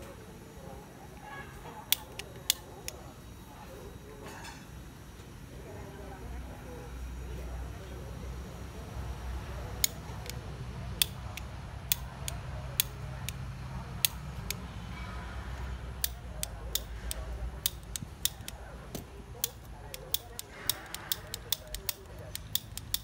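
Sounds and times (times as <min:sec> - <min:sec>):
torch igniter clicking: 0:01.8 - 0:03.1, 0:09.6 - 0:14.7, 0:15.6 - 0:23.0.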